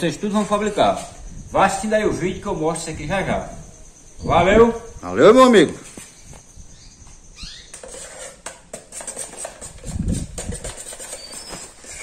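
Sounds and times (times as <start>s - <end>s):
utensils clicking and scraping: 7.7s - 12.0s.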